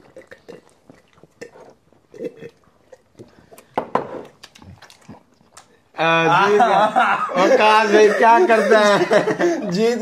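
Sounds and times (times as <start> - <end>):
chewing: 0.0 - 5.9
sipping a drink: 0.0 - 5.9
lip smacks: 2.8 - 5.8.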